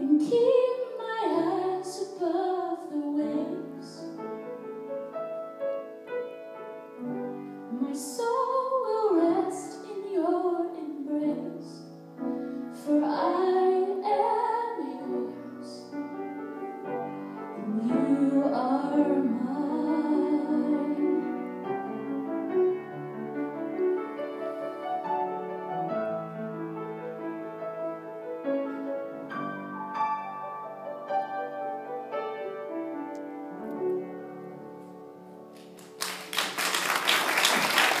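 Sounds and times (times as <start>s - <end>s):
piano playing: 0.0s - 38.0s
applause: 35.6s - 38.0s.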